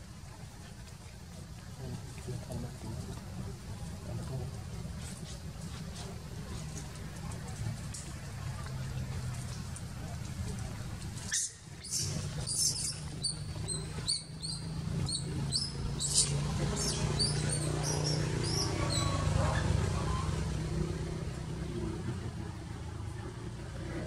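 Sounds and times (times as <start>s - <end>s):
low engine hum: 0.0s - 24.0s
baby monkey squeaking: 11.3s - 20.4s.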